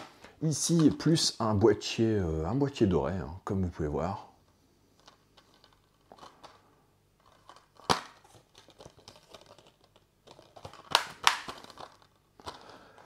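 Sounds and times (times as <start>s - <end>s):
plastic scraping: 5.0s - 13.0s.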